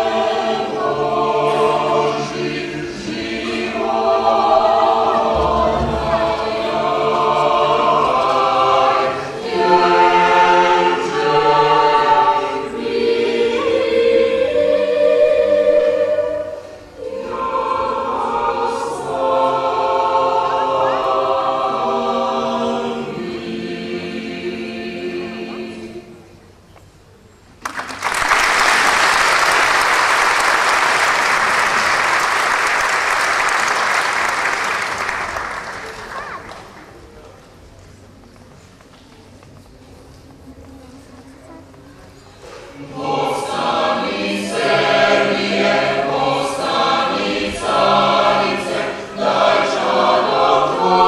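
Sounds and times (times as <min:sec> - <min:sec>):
choir singing a cappella: 0:00.0 - 0:26.4, 0:42.3 - 0:51.0.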